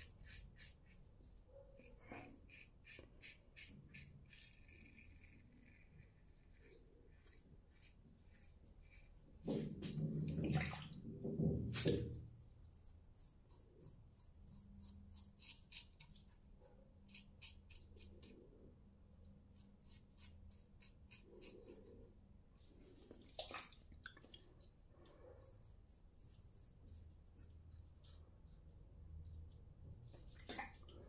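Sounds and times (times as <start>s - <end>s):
razor scratching stubble: 0.0s - 1.1s, 1.8s - 9.4s, 12.9s - 18.5s, 19.5s - 22.0s
water splashing: 10.2s - 11.1s, 23.3s - 24.4s.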